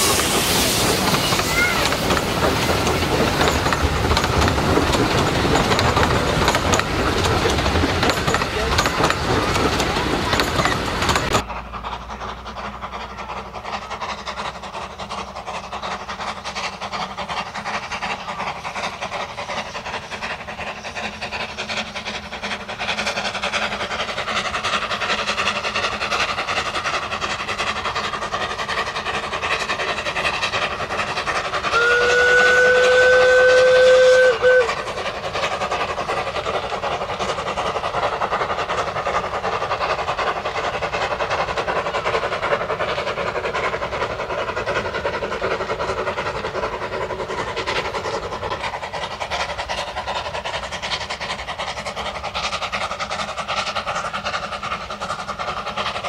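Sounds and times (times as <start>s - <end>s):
steam locomotive exhaust: 0.0s - 56.0s
train wheels on rails: 0.0s - 56.0s
steam whistle blast: 31.7s - 34.8s.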